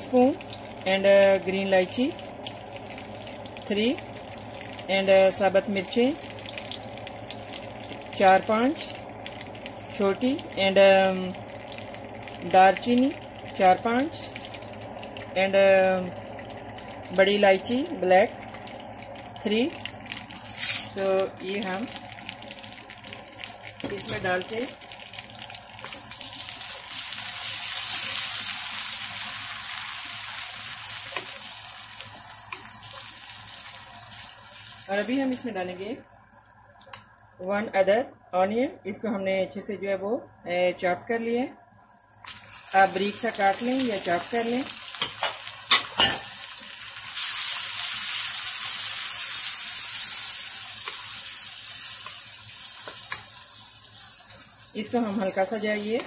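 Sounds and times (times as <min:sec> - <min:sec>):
spices sizzling in hot oil: 0:00.0 - 0:36.0, 0:42.2 - 0:56.0
spoon stirring in pan: 0:52.0 - 0:53.4.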